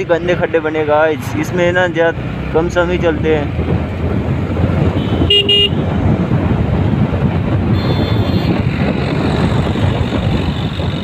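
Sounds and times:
wind and road noise: 0:00.0 - 0:11.0
vehicle horn beep: 0:05.0 - 0:05.8, 0:07.7 - 0:08.7.

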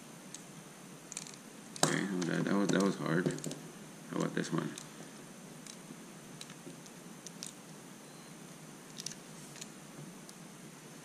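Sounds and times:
pliers clicking and creaking on metal: 0:01.1 - 0:03.6.

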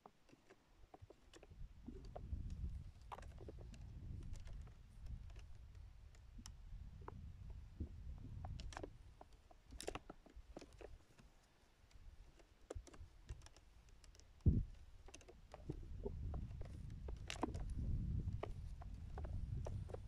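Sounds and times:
low wind rumble: 0:01.5 - 0:08.7, 0:15.6 - 0:20.0.

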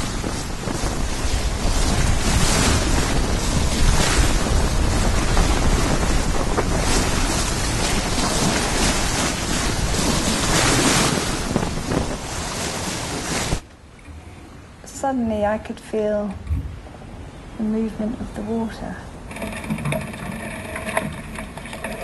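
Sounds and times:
wind noise on microphone: 0:00.0 - 0:14.8, 0:16.3 - 0:17.6
sea water rushing along boat: 0:00.0 - 0:15.2, 0:19.1 - 0:22.0.

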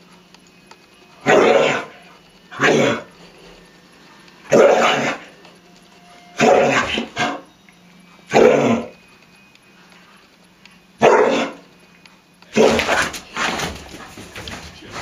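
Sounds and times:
dog barking: 0:01.2 - 0:01.9, 0:04.5 - 0:05.2, 0:06.4 - 0:07.4, 0:08.3 - 0:08.9, 0:11.0 - 0:11.6.

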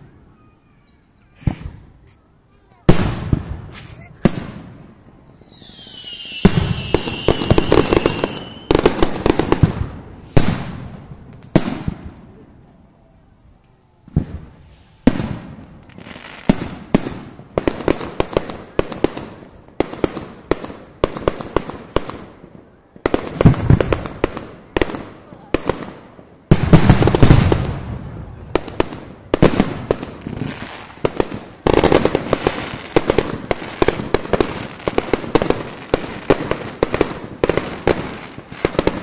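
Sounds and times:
firework bangs: 0:01.4 - 0:01.9, 0:02.9 - 0:12.3, 0:14.1 - 0:39.0
fast firework crackling: 0:02.9 - 0:12.2, 0:23.1 - 0:39.0
firework whistle sliding down: 0:05.1 - 0:08.8.

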